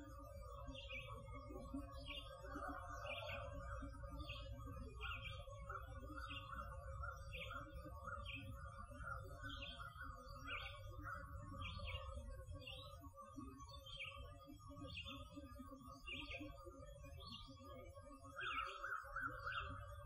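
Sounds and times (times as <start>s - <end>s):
bird chirping: 0.6s - 13.0s.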